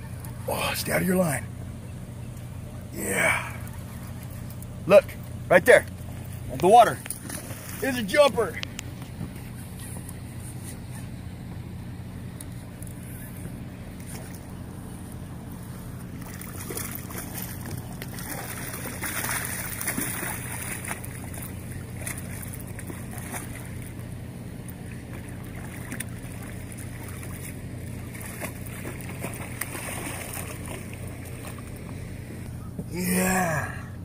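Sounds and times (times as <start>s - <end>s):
low engine hum: 0.0s - 34.0s
fish splashing and thrashing: 3.5s - 8.0s, 13.8s - 32.3s.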